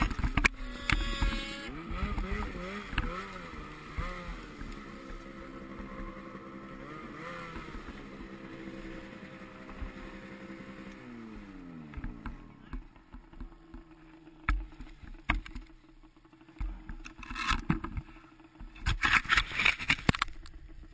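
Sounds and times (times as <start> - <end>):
snowmobile engine: 0.0 - 20.9
brief rustle: 17.0 - 20.5.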